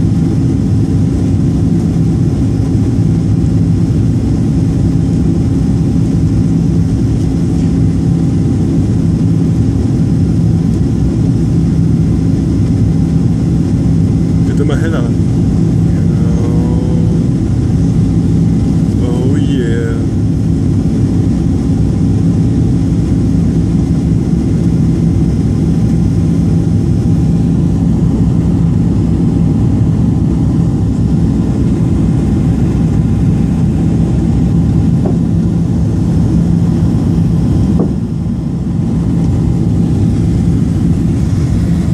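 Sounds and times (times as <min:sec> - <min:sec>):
airplane cabin engine rumble: 0:00.0 - 0:41.9.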